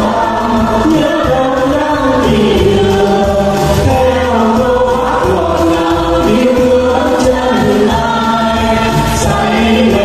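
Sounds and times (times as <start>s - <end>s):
amplified backing music: 0.0s - 10.0s
group singing into microphones: 0.0s - 10.0s.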